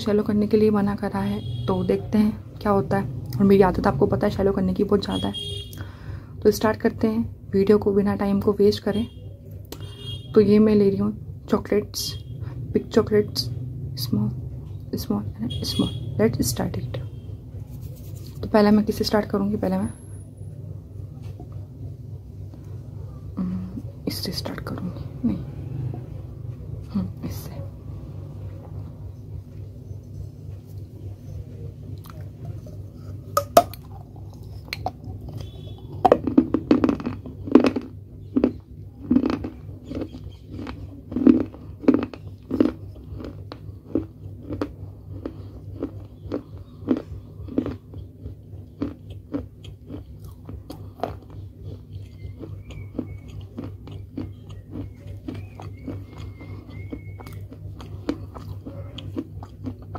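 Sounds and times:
steady low hum: 0:00.0 - 0:59.9
crunching and chewing clay: 0:30.5 - 0:59.9.

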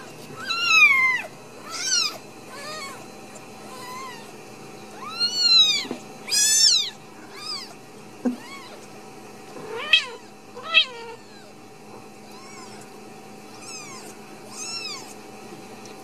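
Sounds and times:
kitten mewing: 0:00.0 - 0:04.4, 0:05.0 - 0:08.9, 0:09.6 - 0:11.6, 0:12.3 - 0:12.9, 0:13.5 - 0:15.2.

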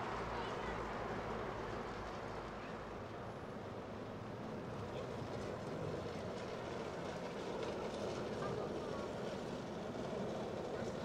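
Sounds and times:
distant city traffic rumble: 0:00.0 - 0:11.0.

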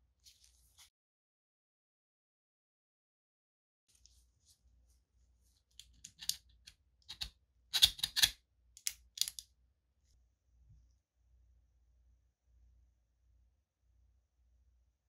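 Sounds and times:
plastic parts clicking and clacking: 0:05.8 - 0:09.4.

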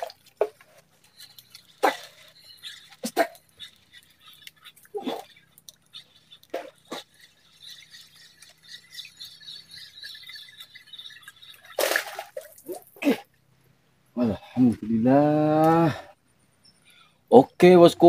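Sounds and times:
steady high chirring: 0:00.0 - 0:12.7
fish splashing at water surface: 0:00.0 - 0:13.0.

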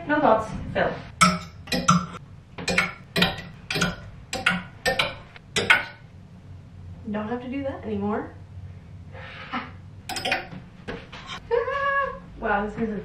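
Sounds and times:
hangers clicking on closet rod: 0:01.2 - 0:06.0, 0:10.1 - 0:10.6.

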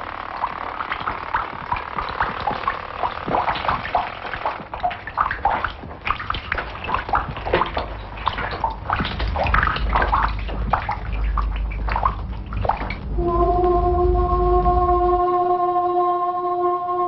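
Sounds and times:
water dripping and splashing: 0:00.0 - 0:13.8
low rumble: 0:00.0 - 0:17.0
held musical note: 0:13.1 - 0:17.0.

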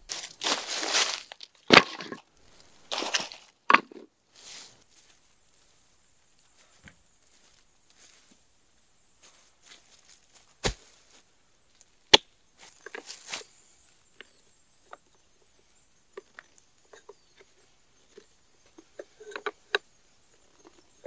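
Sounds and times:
auger crunching into wood: 0:00.0 - 0:02.3, 0:02.9 - 0:04.0, 0:10.6 - 0:11.0
dry leaves rustling: 0:00.0 - 0:03.6, 0:04.3 - 0:05.8, 0:09.2 - 0:11.2, 0:12.6 - 0:13.6
log thumping on ground: 0:01.7 - 0:02.2, 0:10.6 - 0:11.0.

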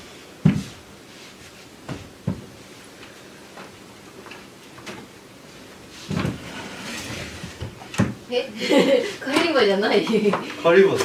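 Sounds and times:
knocks and dull thumps: 0:00.4 - 0:00.8, 0:01.8 - 0:02.5.

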